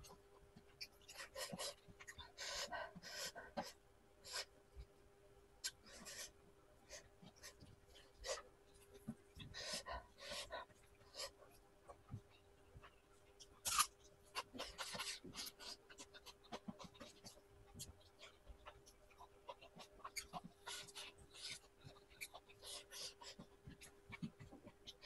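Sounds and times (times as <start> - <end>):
faint steady hum: 0.0 - 25.0
chewing and lip-smacking: 11.9 - 25.0.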